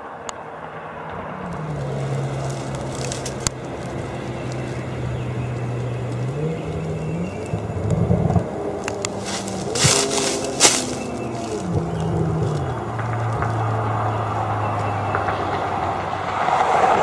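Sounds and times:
sports car driving past: 0.0 - 17.0
sharp crack: 8.8 - 14.1.

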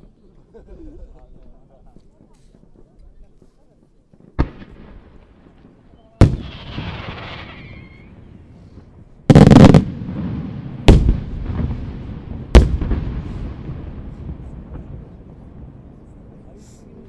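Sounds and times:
firework crackling: 4.2 - 17.0
firework shells bursting: 4.4 - 8.3
rumbling echo: 4.4 - 16.6.

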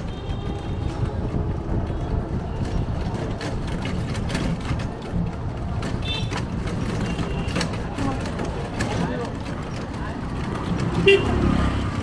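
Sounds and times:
rickshaw ride rumble: 0.0 - 12.0
clicks and rattles: 2.6 - 11.0.

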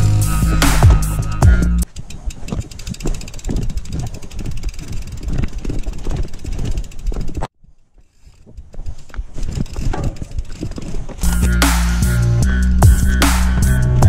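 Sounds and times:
music: 0.0 - 1.8, 11.3 - 14.0
wind on microphone: 1.2 - 7.5, 8.2 - 11.6
camera knocking and rattling: 8.5 - 11.6.

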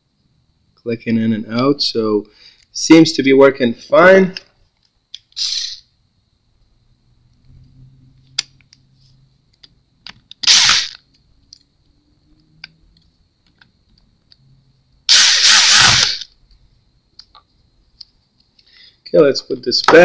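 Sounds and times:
electric screwdriver whirring: 10.4 - 11.0, 15.1 - 16.2.

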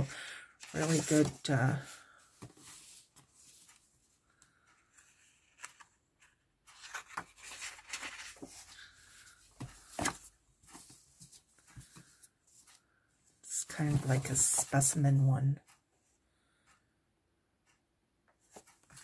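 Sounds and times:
paper sheets rustling and sliding: 0.6 - 3.8, 5.1 - 12.2.

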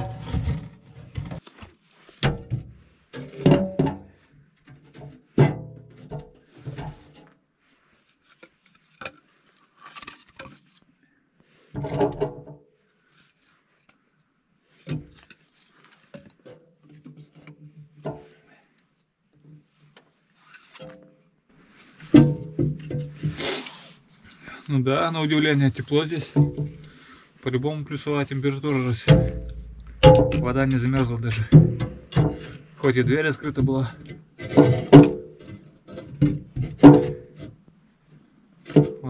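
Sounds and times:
logs hitting metal wood stove: 0.0 - 1.4, 2.2 - 4.2, 22.1 - 23.4, 26.3 - 26.9, 29.0 - 37.4
logs knocking against each other: 22.1 - 23.4, 26.3 - 27.0, 29.0 - 37.5, 38.7 - 39.0.

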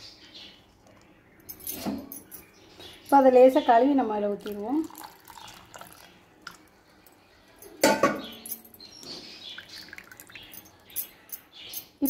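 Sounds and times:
metal kitchen vessel knocking: 7.8 - 8.4.

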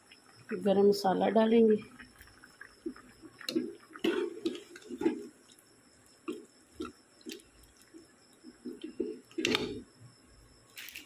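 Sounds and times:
gravy bubbling in a pan: 0.0 - 11.0.

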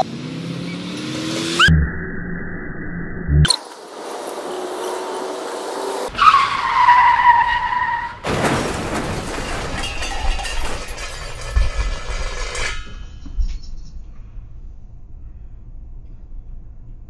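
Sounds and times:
tyres squealing: 4.3 - 13.7
engine and road noise inside van: 13.4 - 17.0.

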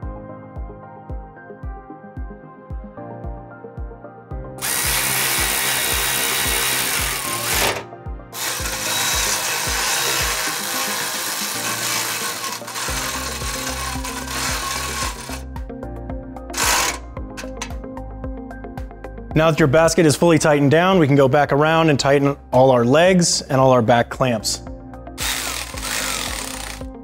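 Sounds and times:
background music with steady beat: 0.0 - 27.0
electric ratchet running: 4.6 - 15.5, 16.5 - 17.7, 25.2 - 26.9.

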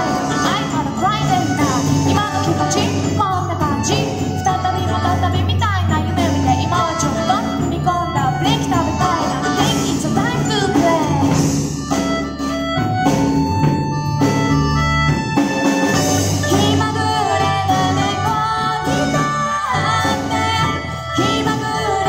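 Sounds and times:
woman singing: 0.0 - 11.5, 16.4 - 22.0
folk band playing: 0.0 - 22.0.

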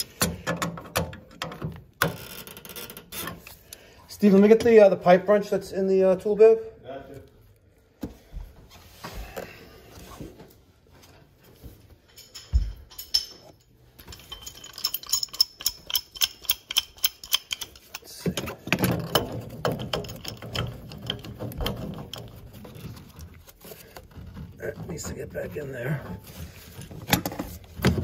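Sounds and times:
metal hand tools clinking: 12.1 - 22.5.

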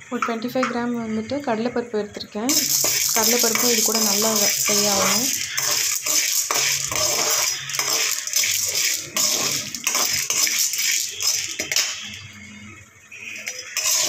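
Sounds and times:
steel ladle scraping metal pan: 2.5 - 12.2, 13.2 - 14.0.

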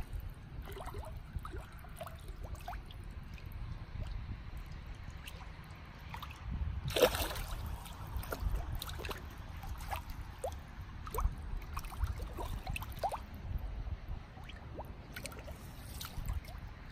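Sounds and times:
water splashing and gurgling: 0.0 - 16.9.

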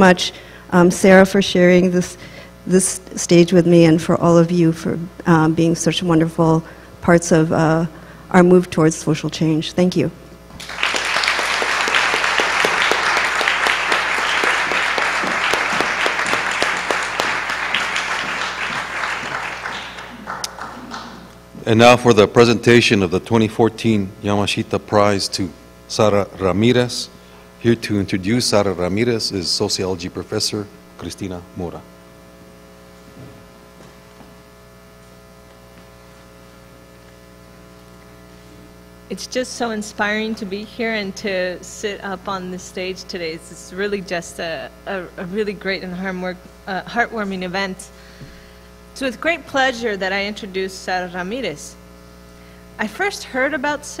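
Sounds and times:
electrical mains hum: 0.0 - 54.0
audience applauding: 10.6 - 21.3.

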